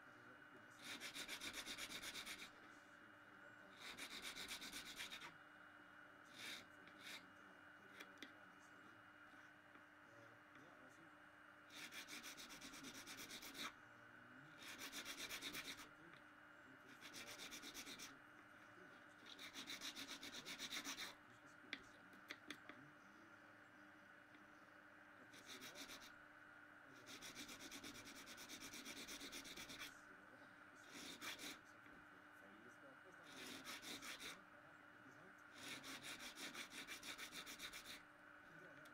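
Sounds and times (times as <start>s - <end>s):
faint steady hum: 0.0s - 38.9s
needle file rasping: 0.8s - 2.6s, 3.8s - 5.3s, 6.3s - 7.2s, 11.7s - 13.7s, 14.6s - 15.9s, 16.9s - 18.1s, 19.2s - 21.1s, 25.3s - 26.1s, 27.0s - 29.9s, 30.8s - 31.6s, 33.2s - 34.4s, 35.5s - 38.0s.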